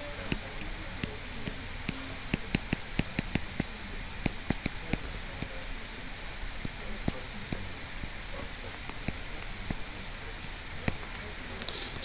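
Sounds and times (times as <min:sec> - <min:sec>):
steady hiss: 0:00.0 - 0:12.0
stylus tapping on tablet: 0:00.3 - 0:05.6, 0:06.6 - 0:08.2.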